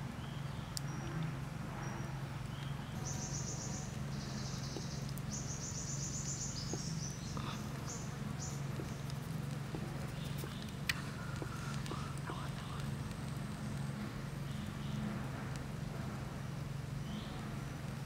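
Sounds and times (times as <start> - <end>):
low hum: 0.0 - 18.0
insects trilling: 3.0 - 15.0
faint clicks: 4.5 - 5.4, 6.2 - 15.7.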